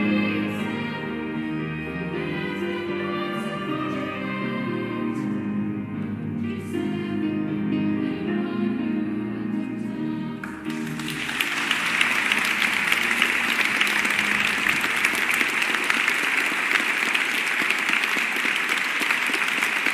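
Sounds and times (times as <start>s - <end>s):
choir with piano: 0.0s - 15.0s
audience applause: 10.7s - 19.9s.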